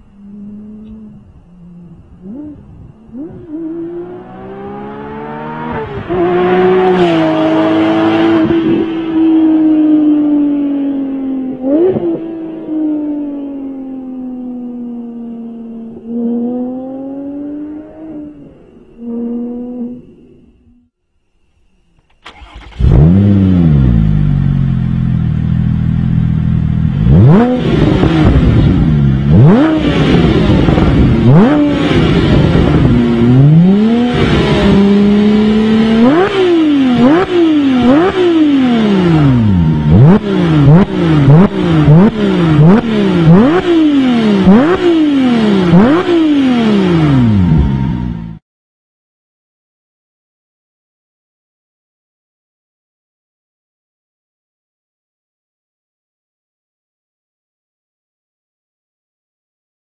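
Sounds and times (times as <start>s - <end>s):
car engine revving: 0.0s - 20.2s, 22.2s - 48.4s
sports car engine accelerating past: 0.1s - 20.4s
car engine starting and idling: 22.0s - 48.3s.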